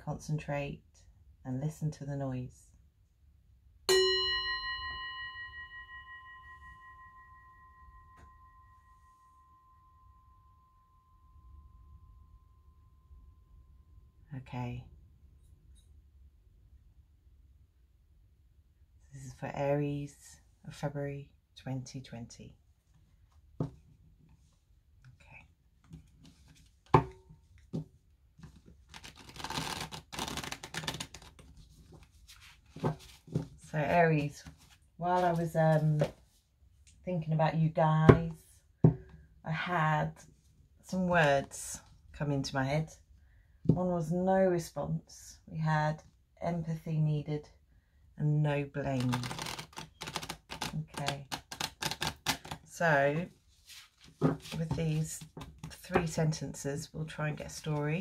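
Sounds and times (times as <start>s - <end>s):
singing bowl ringing: 3.9s - 14.2s
cards being riffle-shuffled: 28.4s - 33.6s, 49.0s - 52.7s, 53.6s - 55.8s.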